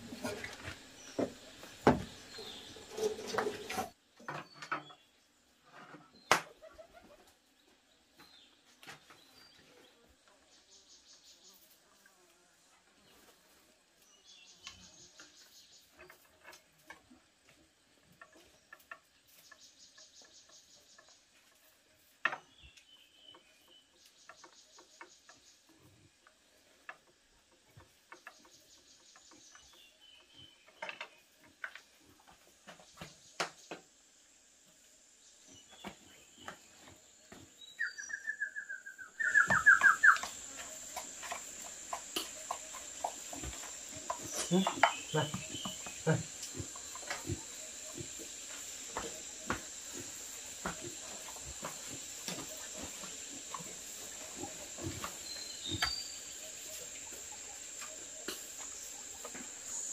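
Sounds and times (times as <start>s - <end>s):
insect chirping: 32.8s - 59.9s
high insect drone: 39.3s - 59.9s.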